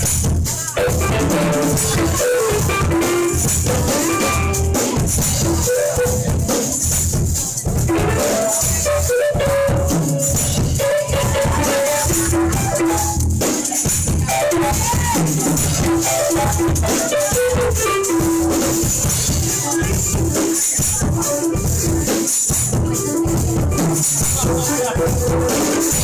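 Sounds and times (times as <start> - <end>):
live band playing: 0.0 - 26.0
tambourine jingling: 9.9 - 25.0.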